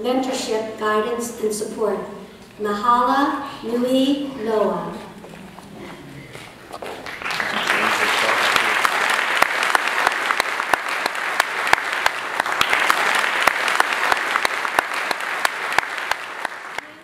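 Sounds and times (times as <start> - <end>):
audience applauding: 6.8 - 17.0
close hand clapping: 6.8 - 17.0.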